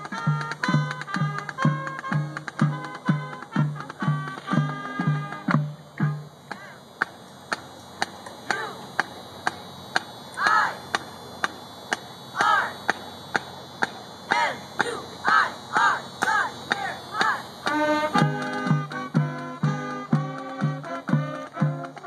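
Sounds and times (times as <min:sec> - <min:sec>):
marching band brass and drums: 0:00.0 - 0:11.1, 0:11.9 - 0:22.0
steady sharp clicks: 0:00.0 - 0:22.0
rising and falling calls: 0:10.3 - 0:11.0, 0:14.3 - 0:21.6.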